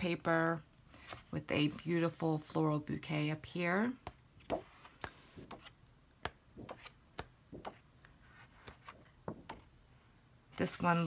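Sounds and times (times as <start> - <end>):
paper pages turning: 4.4 - 5.8, 6.6 - 9.6.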